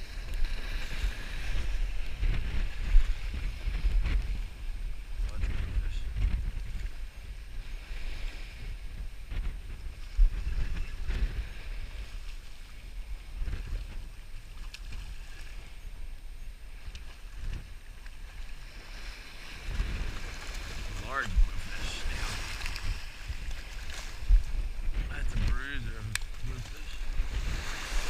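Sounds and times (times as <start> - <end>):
wind buffeting microphone: 0.0 - 28.0
surf breaking: 16.8 - 28.0.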